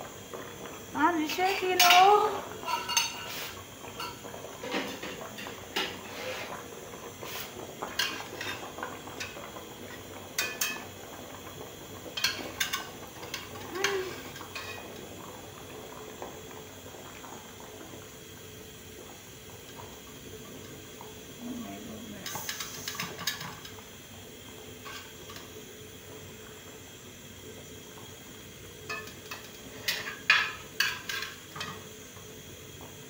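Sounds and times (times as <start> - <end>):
utensil clinking on a metal pot: 1.8 - 3.3, 4.0 - 5.1, 10.4 - 10.8, 12.2 - 14.9, 28.9 - 31.8.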